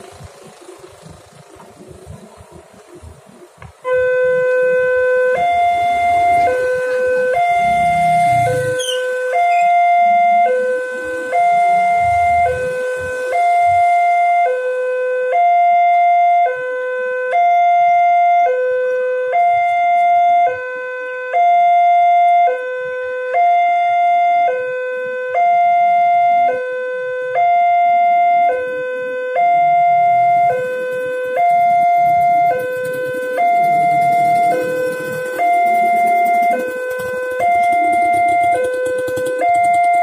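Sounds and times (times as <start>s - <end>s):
low rumble: 0.0s - 9.3s, 29.8s - 39.4s
two-tone crossing alarm: 0.0s - 40.0s.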